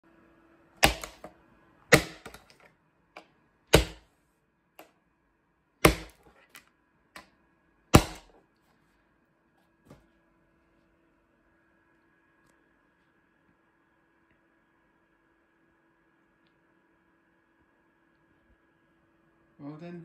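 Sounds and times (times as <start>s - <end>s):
machete chopping plastic toy: 0.8s - 1.3s, 1.9s - 2.7s, 3.7s - 4.0s, 5.8s - 6.6s, 7.9s - 8.3s.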